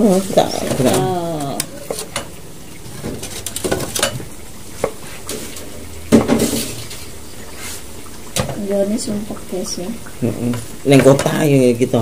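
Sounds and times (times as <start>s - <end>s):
utensils clinking against pots: 0.4s - 7.1s.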